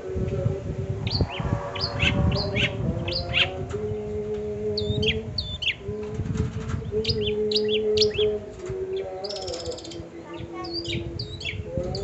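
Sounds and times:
steady low hum: 0:00.0 - 0:09.0
bird chirping rapidly: 0:01.0 - 0:03.6, 0:09.1 - 0:11.7.

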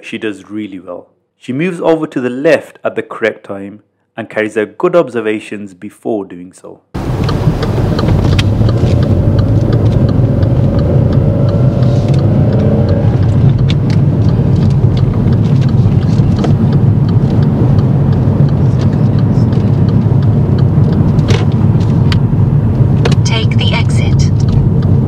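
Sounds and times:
car engine and road noise: 0:07.0 - 0:25.0.

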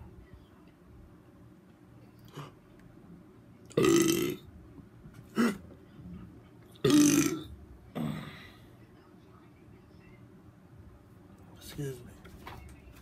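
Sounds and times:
man burping: 0:03.7 - 0:04.4, 0:05.3 - 0:05.6, 0:06.8 - 0:08.4.

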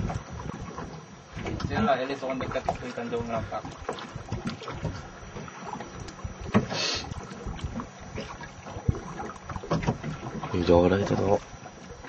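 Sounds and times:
water lapping against hull: 0:00.0 - 0:12.0
knocks against boat hull: 0:06.4 - 0:06.8, 0:08.8 - 0:10.4
brief hiss: 0:06.7 - 0:07.1.

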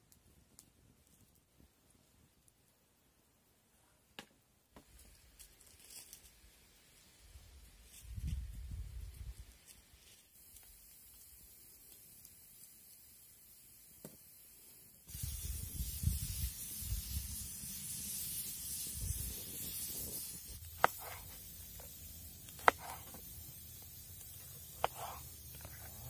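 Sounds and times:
pressure cooker hissing: 0:13.3 - 0:26.0.

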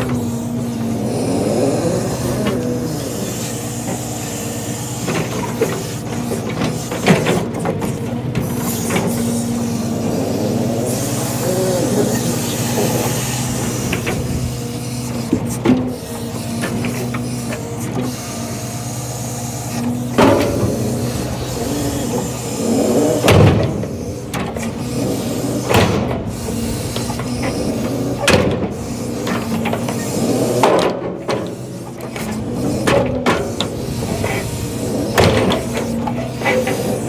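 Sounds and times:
diesel engine running: 0:00.0 - 0:37.0
loader and logs clunking: 0:00.0 - 0:37.0.

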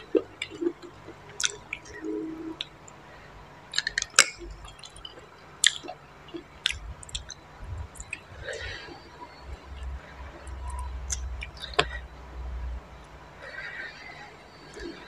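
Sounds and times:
wet chewing: 0:00.0 - 0:02.8, 0:03.7 - 0:12.0
lip smacks: 0:01.4 - 0:02.0, 0:03.7 - 0:09.0, 0:10.5 - 0:12.0.

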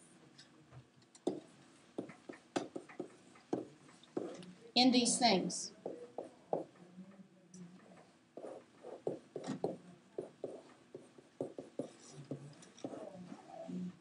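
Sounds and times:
stylus tapping and scratching: 0:01.2 - 0:04.5, 0:05.8 - 0:06.9, 0:07.8 - 0:13.8.

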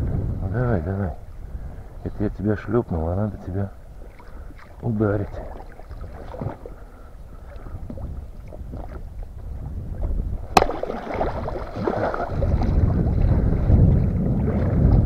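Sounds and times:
water sloshing and splashing: 0:03.8 - 0:15.0
wooden club striking fish: 0:10.5 - 0:12.0
fish thrashing at the surface: 0:10.6 - 0:13.5.

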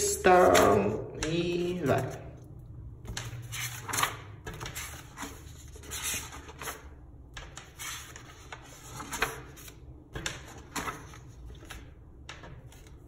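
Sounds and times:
paper pages turning: 0:03.0 - 0:13.0.

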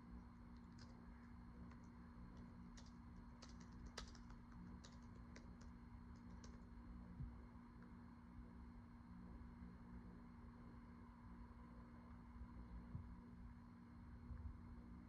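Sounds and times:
low steady hum: 0:00.0 - 0:15.0
keyboard typing clicks: 0:00.6 - 0:01.0, 0:01.7 - 0:06.7.

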